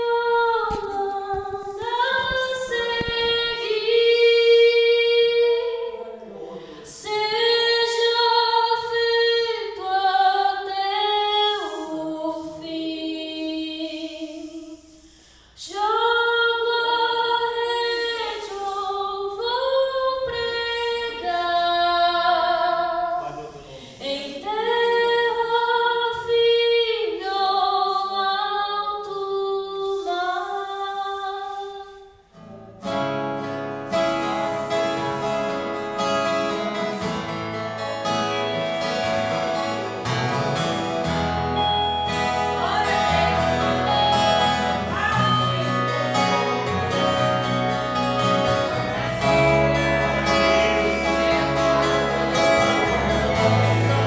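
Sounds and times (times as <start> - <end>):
faint guitar: 0.0 - 14.1, 32.3 - 54.0
woman singing slow worship song: 0.0 - 23.2, 23.9 - 32.3, 41.6 - 47.4.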